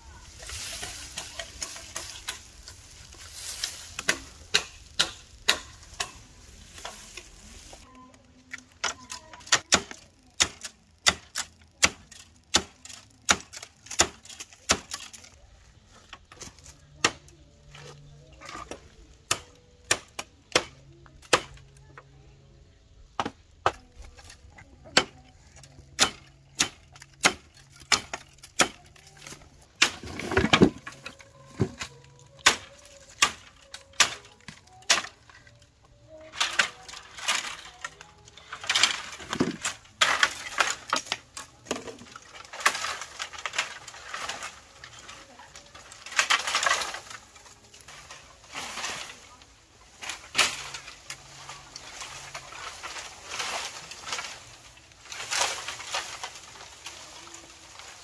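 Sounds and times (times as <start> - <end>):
machete chopping bamboo: 3.5 - 6.2, 8.8 - 15.3, 16.5 - 17.3, 19.3 - 21.6, 23.2 - 35.2.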